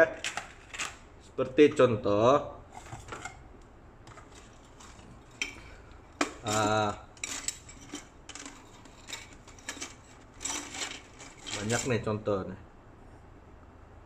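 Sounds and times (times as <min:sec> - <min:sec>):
metal springs rattling in plastic container: 0:06.2 - 0:12.1.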